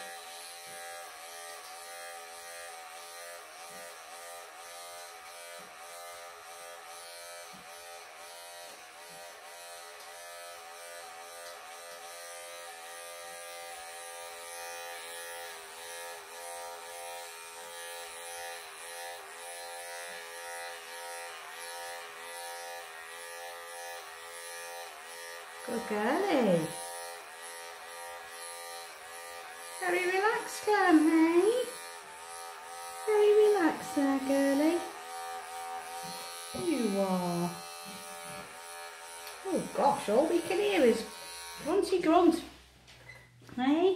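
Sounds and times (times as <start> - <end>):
electric clippers buzzing: 0.0 - 42.6.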